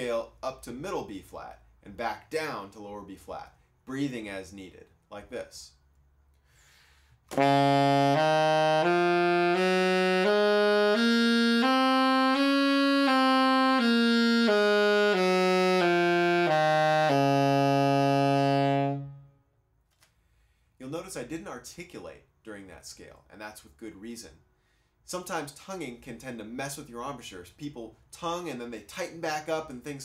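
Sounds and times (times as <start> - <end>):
alto saxophone playing a scale: 7.3 - 19.4.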